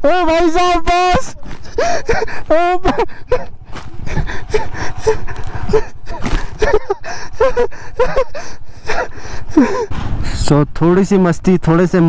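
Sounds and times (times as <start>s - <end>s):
man gasping and crying out: 1.6s - 9.9s.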